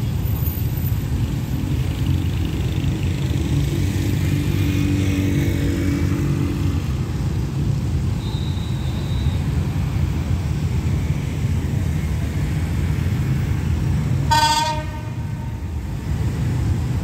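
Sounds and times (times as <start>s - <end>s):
locomotive horn blast: 14.3s - 15.7s.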